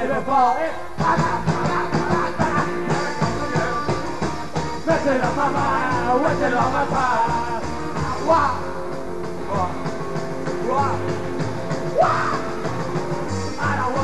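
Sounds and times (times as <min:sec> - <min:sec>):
man singing into microphone: 0:00.0 - 0:04.1, 0:04.8 - 0:08.6
drums and cymbals: 0:00.9 - 0:14.0.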